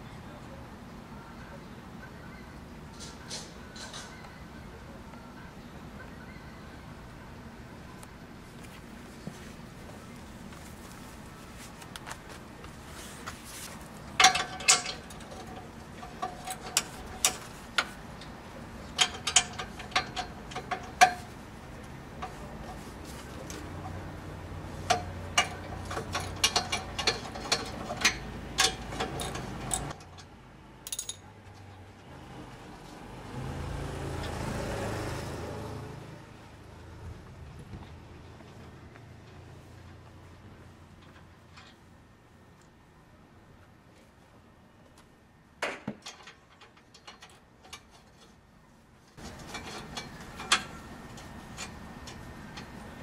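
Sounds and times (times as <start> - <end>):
scraping metal: 22.1 - 30.1.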